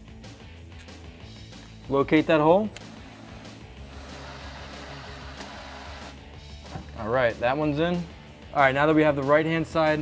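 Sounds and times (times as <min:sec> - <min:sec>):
cordless impact driver running: 0:02.9 - 0:06.2.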